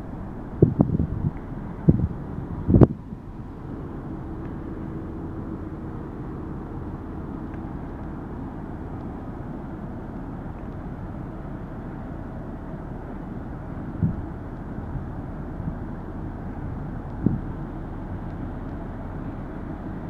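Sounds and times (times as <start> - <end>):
faint hum: 0.0 - 20.0
low rumble: 0.0 - 20.0.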